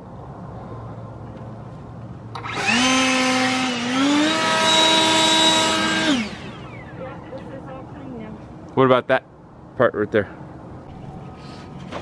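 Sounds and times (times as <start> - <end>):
leaf blower whining: 2.4 - 7.0.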